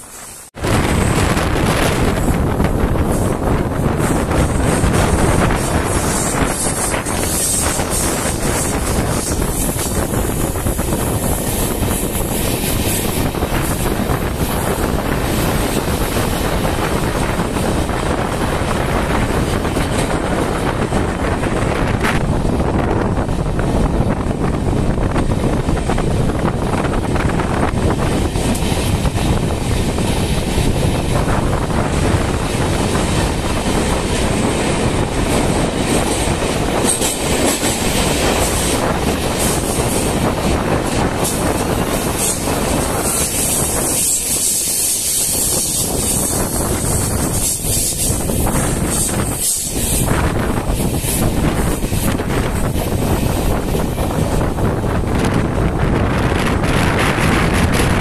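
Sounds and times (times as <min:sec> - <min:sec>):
train wheels rumbling on rails: 0:00.0 - 0:58.0
wind on microphone: 0:00.0 - 0:58.0.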